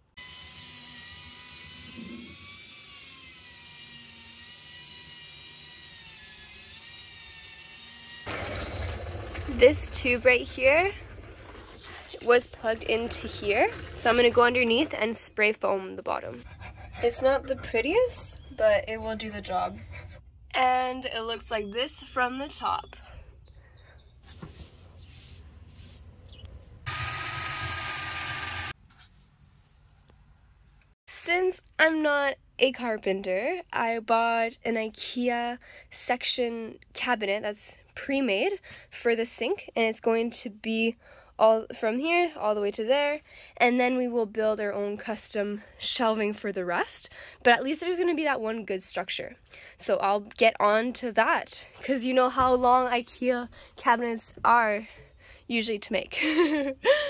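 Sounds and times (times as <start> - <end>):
power tool motor whine: 0.2 - 9.5, 26.8 - 28.8.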